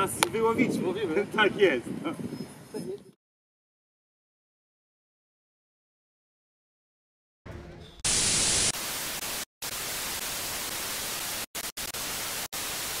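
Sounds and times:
television static hiss: 0:08.1 - 0:13.0.

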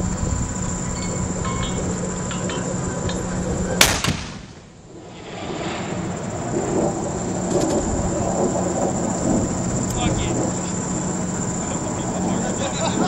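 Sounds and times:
low rumble and hum: 0:00.0 - 0:13.0
gunfire bangs: 0:03.8 - 0:04.6.

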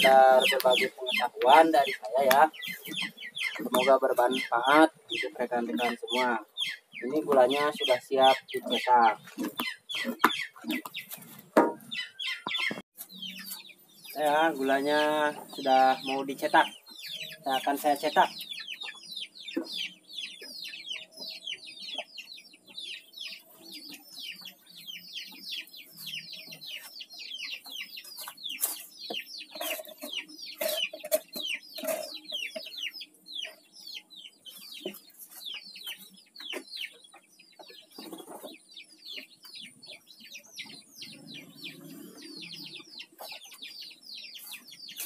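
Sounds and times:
chickens peeping: 0:00.0 - 0:45.0.

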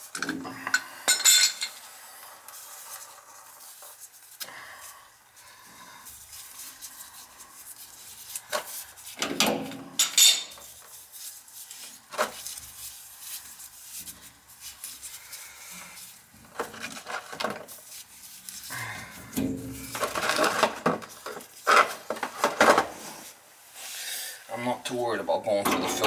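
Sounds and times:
metal tools knocking and clinking: 0:00.1 - 0:01.8, 0:09.2 - 0:10.6, 0:25.6 - 0:26.0.

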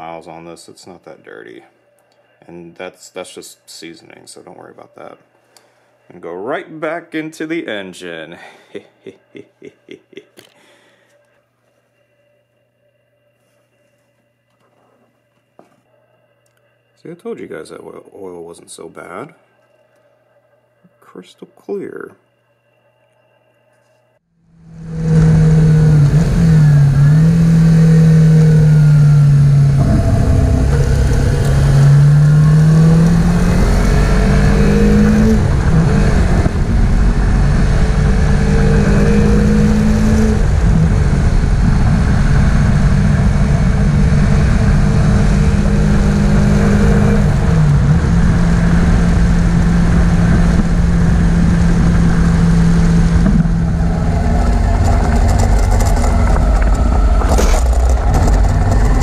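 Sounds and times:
motorcycle engine running: 0:24.6 - 0:59.0
wind and road rush: 0:24.7 - 0:59.0.

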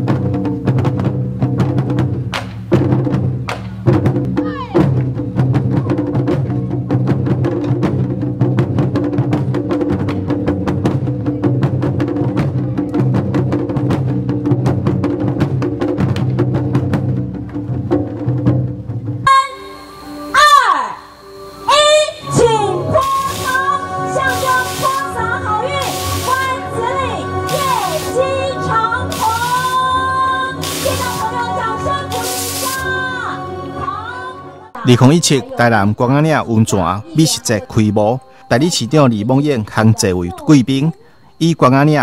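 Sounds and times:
taiko drums playing fast rhythm: 0:00.0 - 0:19.2, 0:25.8 - 0:26.7, 0:27.5 - 0:28.2
sustained held notes: 0:19.3 - 0:32.6.

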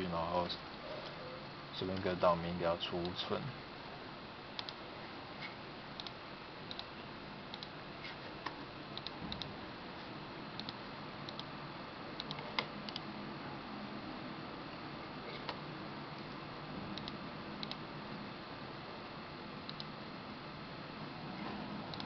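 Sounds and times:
faint steady hum: 0:00.0 - 0:22.0
computer mouse clicking: 0:04.6 - 0:04.8, 0:06.0 - 0:06.9, 0:07.5 - 0:07.7, 0:09.0 - 0:09.5, 0:10.6 - 0:11.5, 0:12.2 - 0:13.0, 0:17.0 - 0:17.8, 0:19.7 - 0:19.9.

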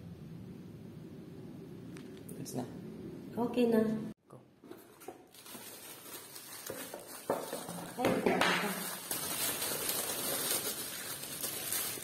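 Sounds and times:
plastic wrapping crinkling: 0:04.8 - 0:12.0.

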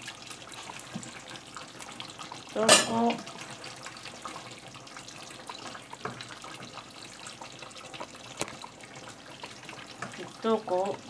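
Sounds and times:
stew bubbling and sizzling: 0:00.0 - 0:11.0
spoon clinking on metal pot: 0:02.6 - 0:03.0.

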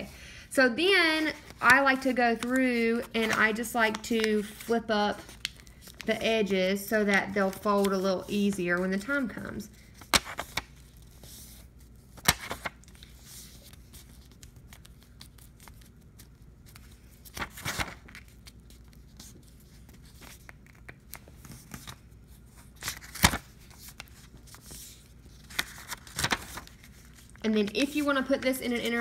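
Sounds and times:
paper rustling and creasing: 0:01.0 - 0:29.0.

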